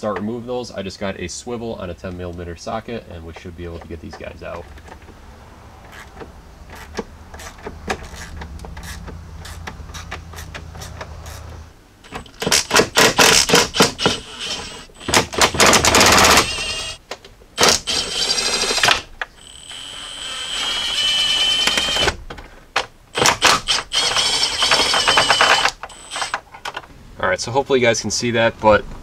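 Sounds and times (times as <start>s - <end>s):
ratchet clicking: 6.7s - 11.5s, 23.2s - 26.4s.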